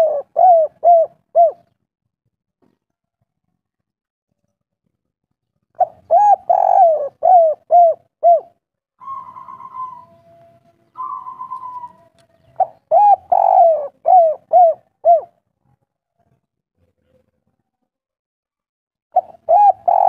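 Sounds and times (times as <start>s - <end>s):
dove cooing: 0.0s - 1.8s, 5.8s - 15.4s, 19.2s - 20.0s.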